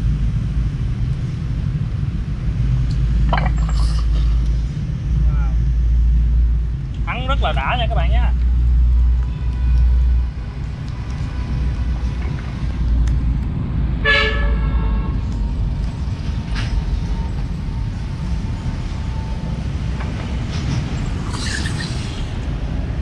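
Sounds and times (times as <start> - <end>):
traffic rumble: 0.0 - 23.0
wind: 0.0 - 23.0
vehicle horn: 14.0 - 15.2.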